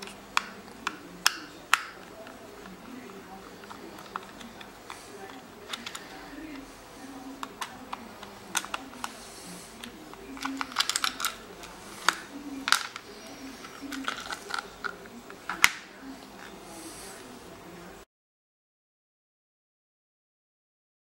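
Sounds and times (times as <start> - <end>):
plastic housing clicks and taps: 0.0 - 2.8, 7.4 - 9.2, 9.8 - 15.9.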